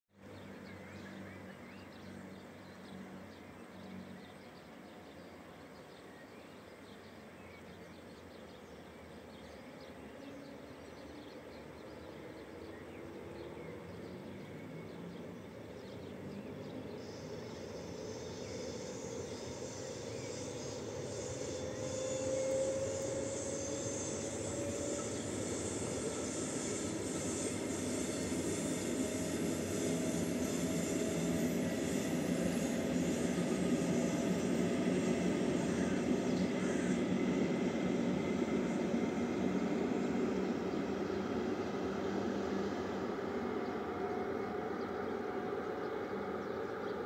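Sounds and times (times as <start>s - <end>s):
electric train motor whine: 16.5s - 47.0s.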